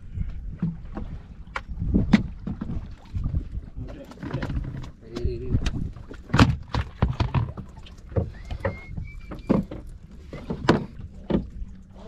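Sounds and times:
knocks and slaps around boat: 0.2 - 12.0
faint high whistle: 8.3 - 9.6.

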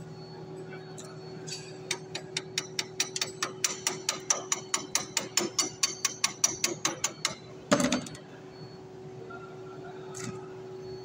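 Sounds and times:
hammer tapping on steel: 1.9 - 7.4.

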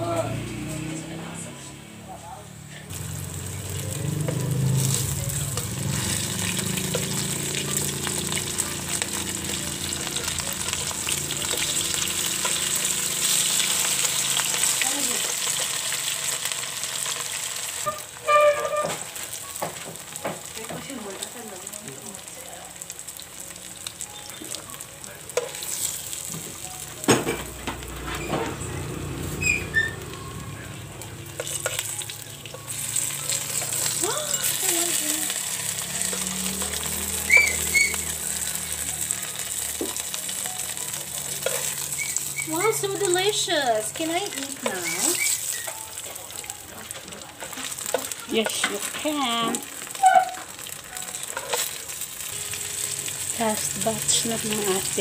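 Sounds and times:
fritters sizzling in hot oil: 2.9 - 55.0
metal tongs clicking on pan: 51.2 - 51.9.

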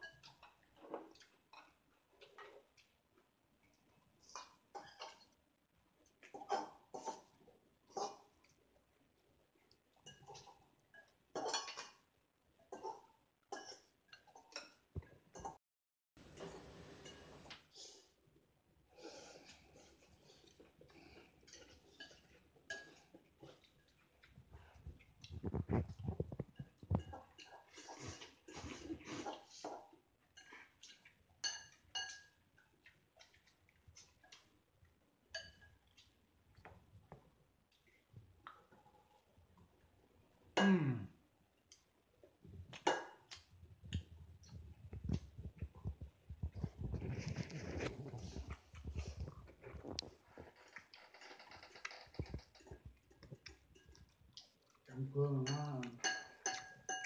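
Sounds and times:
chopsticks clinking on ceramic bowl: 31.4 - 32.4, 35.3 - 35.8, 55.4 - 57.0.

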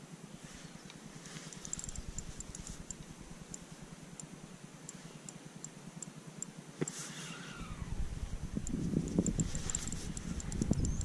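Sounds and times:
fishing reel clicking: 1.5 - 3.6, 8.6 - 11.0
low wind rumble: 7.4 - 11.0.

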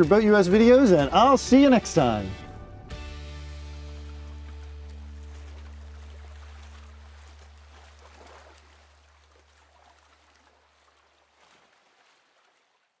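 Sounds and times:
low held bass note: 1.0 - 4.6
faint watery rushing noise: 3.8 - 12.2.

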